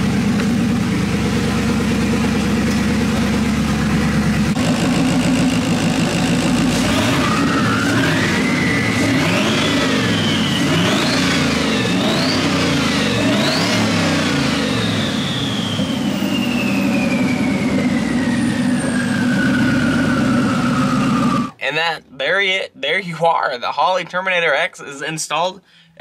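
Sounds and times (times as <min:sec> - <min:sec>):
car engine revving: 0:00.0 - 0:21.6
high turbo whine: 0:00.0 - 0:21.6.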